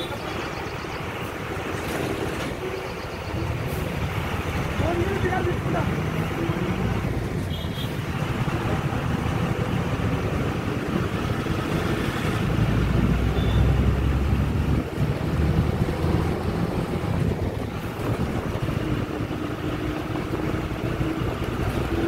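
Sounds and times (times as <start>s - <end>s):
road vehicle rumble: 0.0s - 22.0s
wind buffeting microphone: 14.0s - 22.0s.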